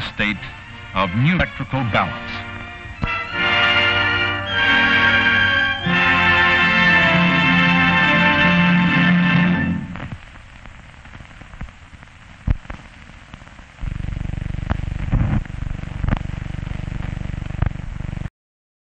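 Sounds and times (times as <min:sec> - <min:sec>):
film hiss with crackles: 0:00.0 - 0:18.3
loud low pulsing buzz: 0:13.8 - 0:18.3.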